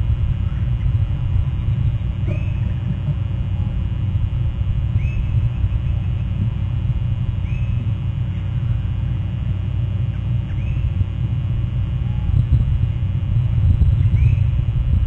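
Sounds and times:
low rumble: 0:00.0 - 0:15.0
oystercatchers calling: 0:04.9 - 0:06.6, 0:07.3 - 0:08.9, 0:10.1 - 0:11.4, 0:13.8 - 0:14.7.

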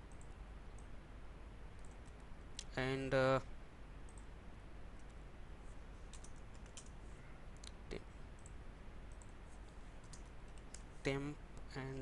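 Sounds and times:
steady low hum: 0:00.0 - 0:12.0
computer keyboard keystrokes: 0:06.1 - 0:07.0, 0:10.0 - 0:10.8.

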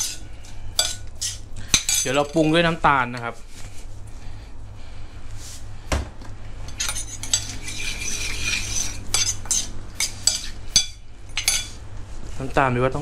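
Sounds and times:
spoon scraping and stirring: 0:00.0 - 0:03.9, 0:06.6 - 0:11.8.

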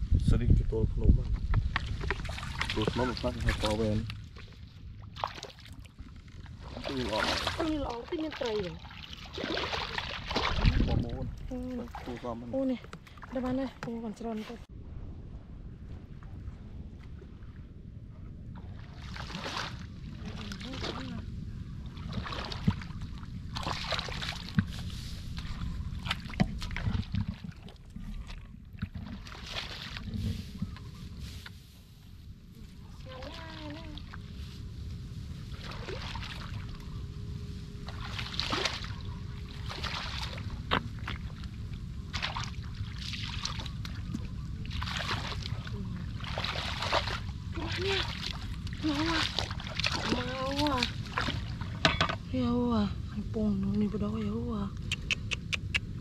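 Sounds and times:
low rumble: 0:00.0 - 0:29.3, 0:30.0 - 0:56.0
water splashing: 0:01.6 - 0:14.7, 0:18.5 - 0:31.0, 0:35.4 - 0:37.0, 0:37.8 - 0:52.5.

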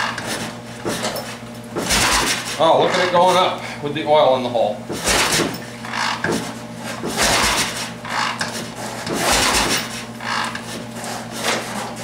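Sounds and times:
engine being cranked over: 0:01.8 - 0:02.6, 0:07.0 - 0:08.5, 0:09.1 - 0:10.6.

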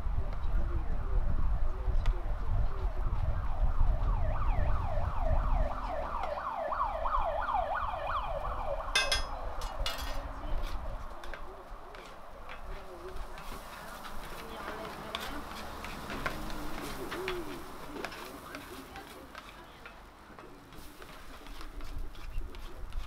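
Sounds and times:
siren in fast yelp: 0:02.9 - 0:09.0
spatula scraping steel griddle: 0:09.0 - 0:23.0.

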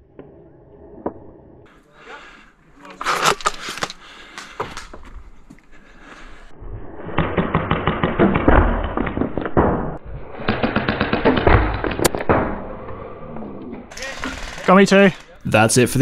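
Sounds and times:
sharp crack: 0:07.0 - 0:13.0.

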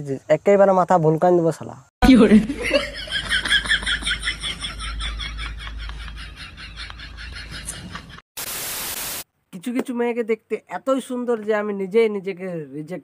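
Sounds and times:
high-pitched giggling laugh: 0:02.3 - 0:08.2
static hiss: 0:08.4 - 0:09.3.

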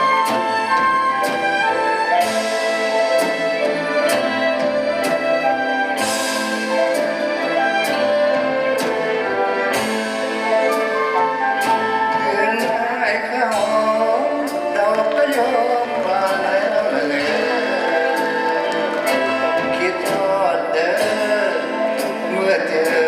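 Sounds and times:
orchestra playing: 0:00.0 - 0:23.0.

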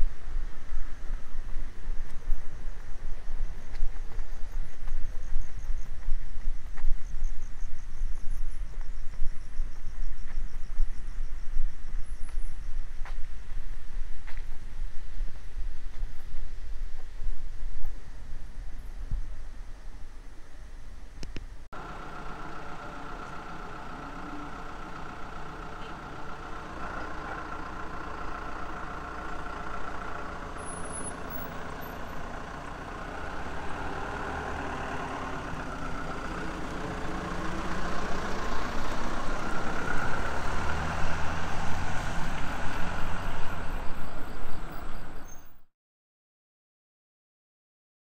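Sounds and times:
minibus engine idling and pulling away: 0:21.7 - 0:45.6.

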